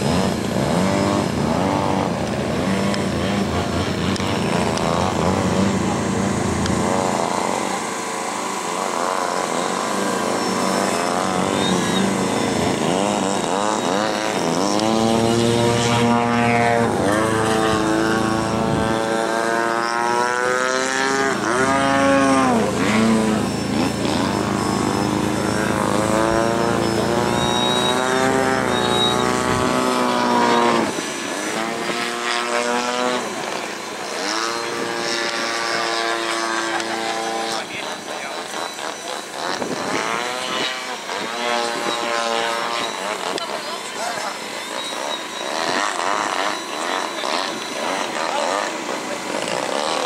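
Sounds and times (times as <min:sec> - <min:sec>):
model airplane engine buzzing: 0:00.0 - 0:50.0
people's voices: 0:30.7 - 0:42.0, 0:42.6 - 0:50.0.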